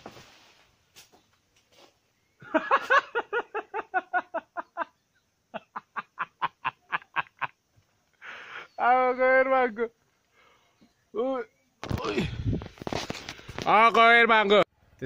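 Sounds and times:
man laughing hard: 2.4s - 7.6s.

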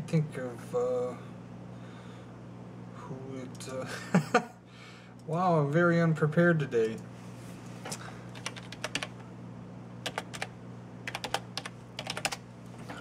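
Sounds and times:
steady low hum: 0.0s - 13.0s
typing on computer keyboard: 8.4s - 9.2s, 10.0s - 10.5s, 11.1s - 12.4s.

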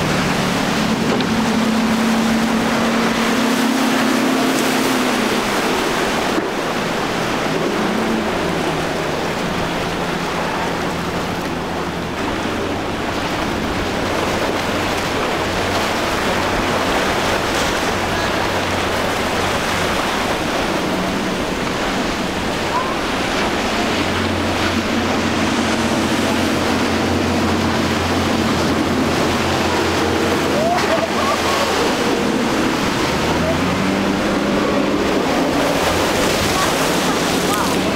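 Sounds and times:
outboard motor engine drone: 0.0s - 37.9s
rushing of wake and surf: 0.0s - 37.9s.

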